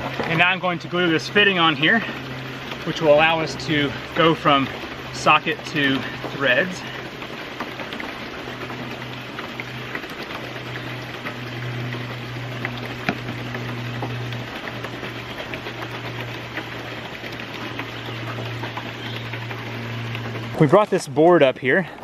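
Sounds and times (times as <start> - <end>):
low steady hum: 0.0 - 22.0
running water: 0.0 - 22.0.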